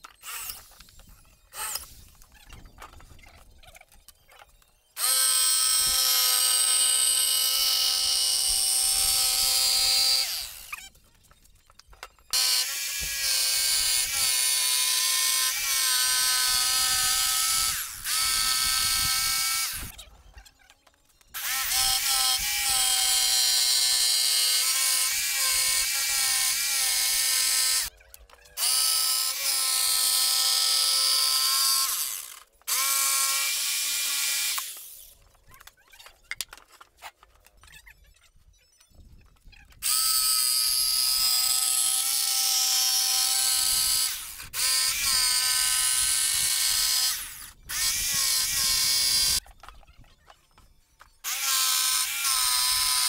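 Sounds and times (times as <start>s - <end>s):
jigsaw cutting plywood: 5.0s - 10.9s, 12.3s - 19.9s, 21.4s - 27.9s, 28.6s - 35.0s, 39.8s - 49.4s, 51.2s - 53.0s.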